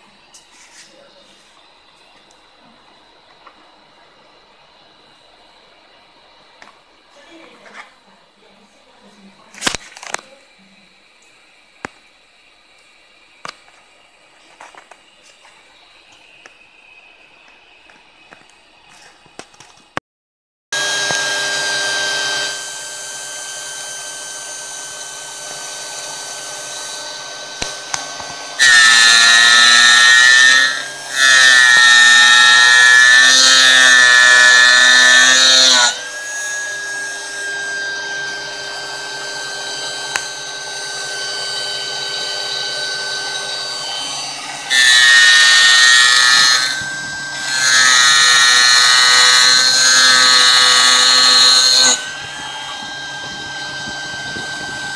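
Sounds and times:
gear cutter cutting brass: 20.8 - 54.9
spindle whine: 20.8 - 54.9.

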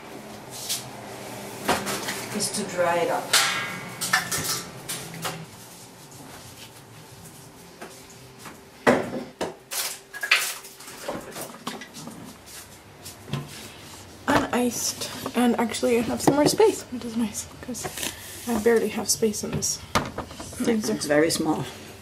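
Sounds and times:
containers knocking and clattering: 16.2 - 16.7, 19.5 - 21.0.

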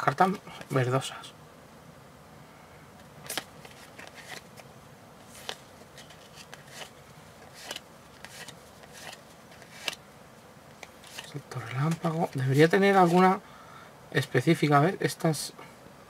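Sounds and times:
cards sliding and snapping: 3.0 - 10.0, 10.7 - 13.3.

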